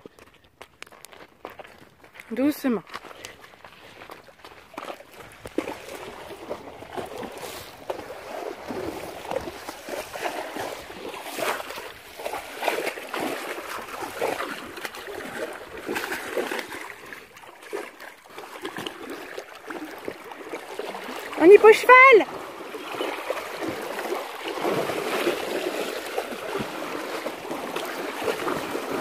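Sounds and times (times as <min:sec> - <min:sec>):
horse splashing through water: 0:01.7 - 0:29.0.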